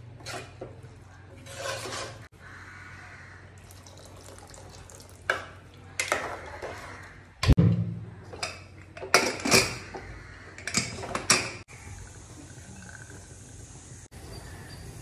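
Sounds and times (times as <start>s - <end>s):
water pouring into pot: 3.6s - 6.3s.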